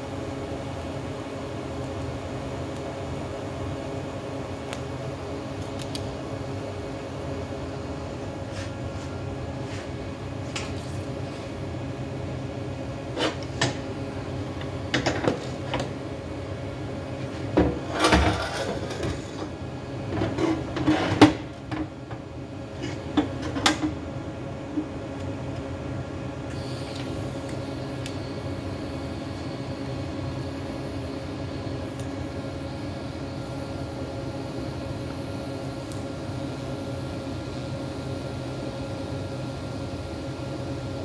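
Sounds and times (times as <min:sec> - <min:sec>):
shop hum: 0:00.0 - 0:41.0.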